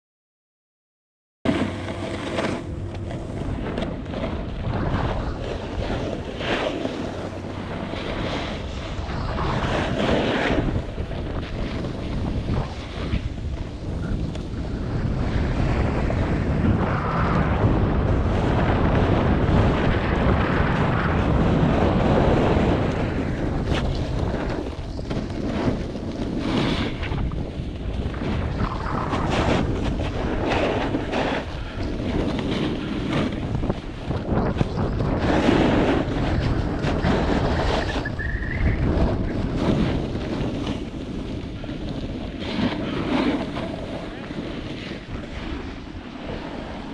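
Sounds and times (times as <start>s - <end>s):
ski edges scraping snow: 1.5s - 13.4s, 23.4s - 27.2s, 28.2s - 46.9s
wind buffeting microphone: 1.5s - 46.9s.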